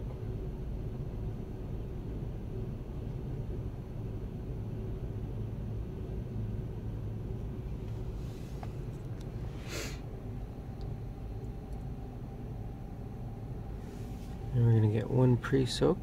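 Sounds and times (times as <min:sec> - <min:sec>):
muffled car wash spray rumble: 0:00.0 - 0:16.0
short sharp hiss: 0:09.4 - 0:10.1.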